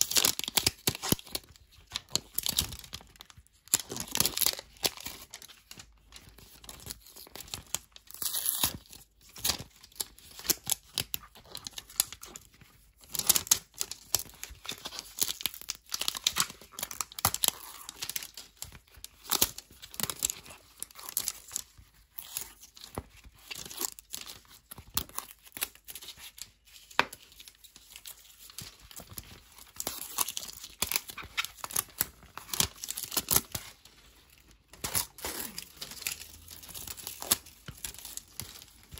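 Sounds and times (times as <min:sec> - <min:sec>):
wrapping crinkling: 0:00.0 - 0:38.9
plastic handling noises: 0:08.9 - 0:38.9.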